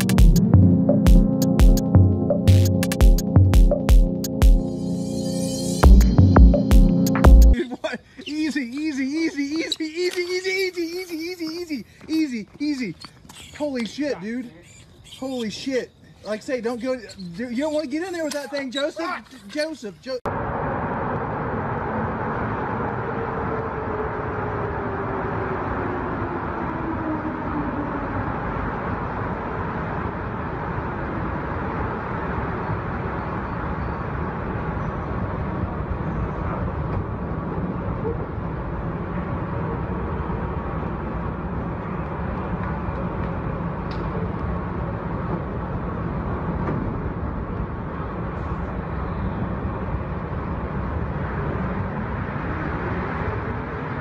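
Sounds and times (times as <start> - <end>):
subway train rumble and hiss: 20.4 - 54.0.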